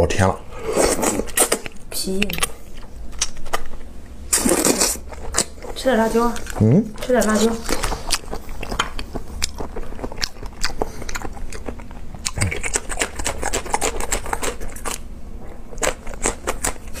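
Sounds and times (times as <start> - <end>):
chili pepper crunching: 1.0 - 17.0
wet mouth clicks: 10.2 - 15.0.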